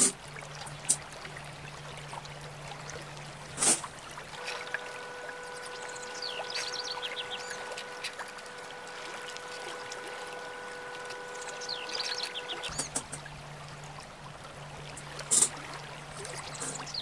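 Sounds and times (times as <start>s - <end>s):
trickling water: 0.0s - 17.0s
birds chirping: 4.4s - 13.2s, 16.2s - 17.0s
steady held tone: 4.4s - 13.2s.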